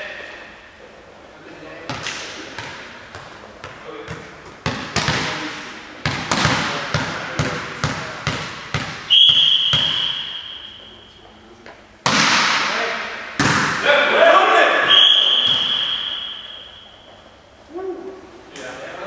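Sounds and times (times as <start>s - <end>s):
ball bouncing on hall floor: 1.8s - 11.0s, 11.6s - 13.9s, 14.9s - 17.3s
volleyball serve hit: 4.0s - 10.6s, 12.0s - 16.7s
referee whistle blast: 9.1s - 11.1s, 14.8s - 17.0s.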